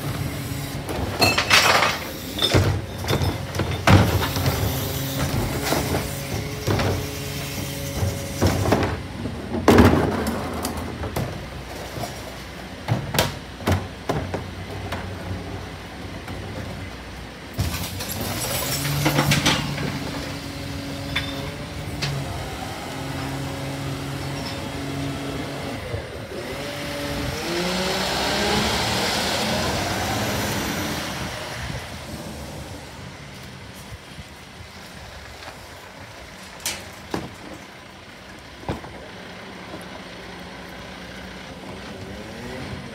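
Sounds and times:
garbage truck engine hum: 0:00.0 - 0:42.9
truck pulling away: 0:17.8 - 0:36.3, 0:36.9 - 0:42.9.

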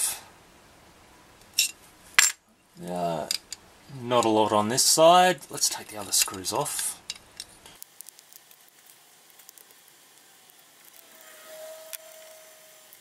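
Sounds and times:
faint thin squeak: 0:11.0 - 0:13.0.

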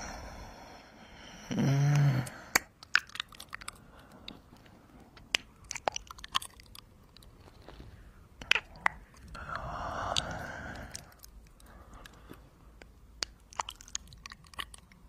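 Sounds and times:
person humming: 0:01.4 - 0:02.5
wet lip smacks: 0:08.4 - 0:12.4, 0:13.2 - 0:15.0.

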